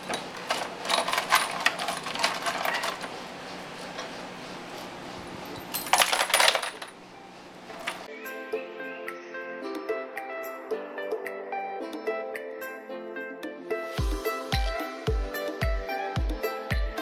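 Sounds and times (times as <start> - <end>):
metal bolts clinking: 0.0 - 4.1, 4.7 - 7.0, 7.7 - 8.1.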